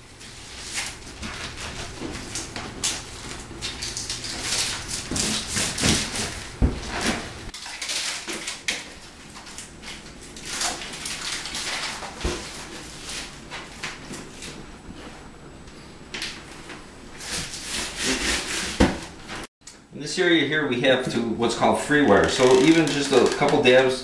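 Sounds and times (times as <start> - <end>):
mesh and tape rustling: 0.2 - 15.1.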